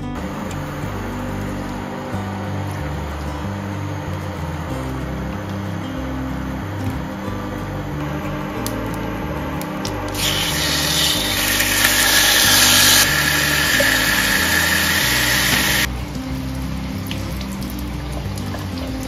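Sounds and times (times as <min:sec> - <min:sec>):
chicken sizzling in a frying pan: 0:10.2 - 0:15.9.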